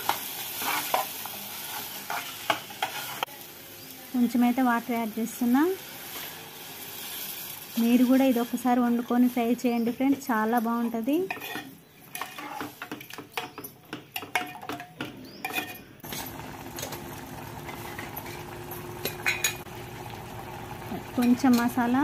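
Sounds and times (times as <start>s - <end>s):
curry bubbling and sizzling: 0.0s - 10.3s, 16.0s - 22.0s.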